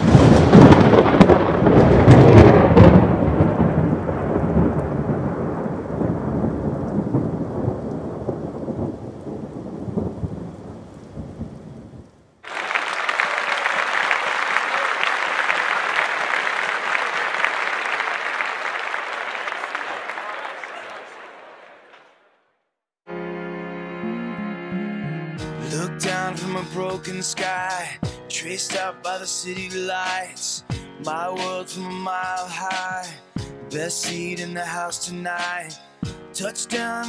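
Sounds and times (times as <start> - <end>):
thunder clap and rumble: 0.0 - 12.3.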